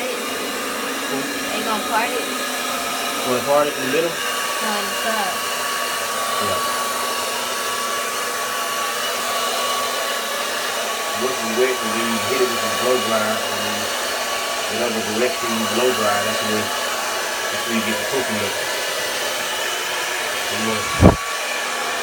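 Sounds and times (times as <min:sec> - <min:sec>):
hair dryer running: 0:00.0 - 0:22.0.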